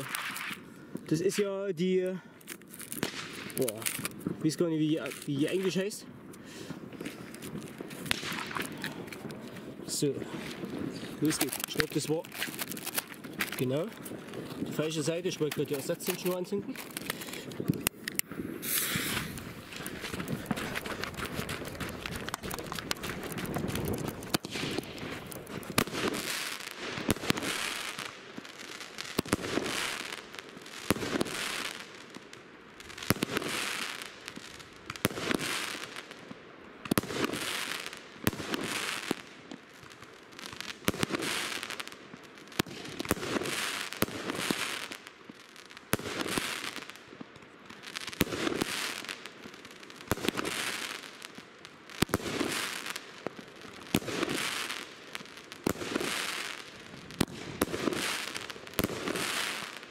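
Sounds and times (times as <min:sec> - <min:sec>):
firework crackling: 0:00.0 - 0:59.9
firework shots banging: 0:02.9 - 0:04.4, 0:07.0 - 0:09.5, 0:14.3 - 0:28.0, 0:57.2 - 0:59.7.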